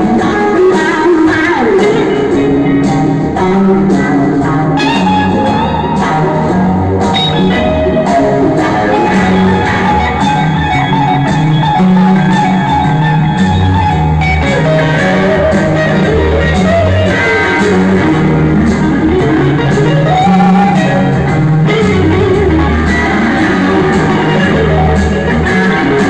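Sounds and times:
bass guitar: 0.0s - 26.0s
drum kit: 0.0s - 26.0s
electric guitar lead: 0.0s - 26.0s.

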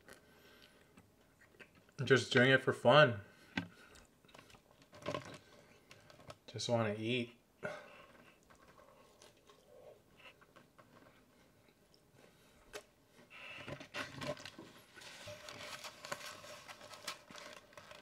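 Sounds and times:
rustling and crackling: 3.6s - 6.5s, 12.7s - 18.0s.

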